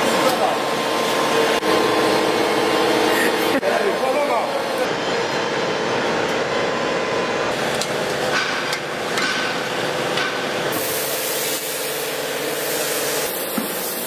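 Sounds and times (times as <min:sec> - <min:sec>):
workshop hum: 0:00.0 - 0:14.0.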